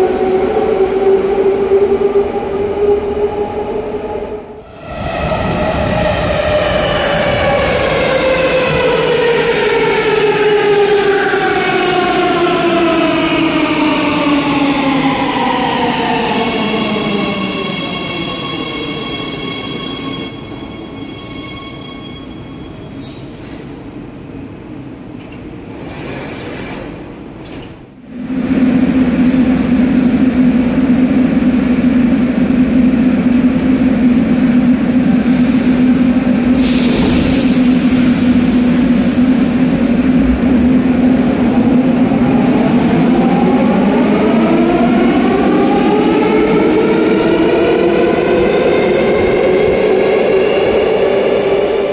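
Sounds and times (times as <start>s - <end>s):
metro train rumbling: 0.0s - 51.9s.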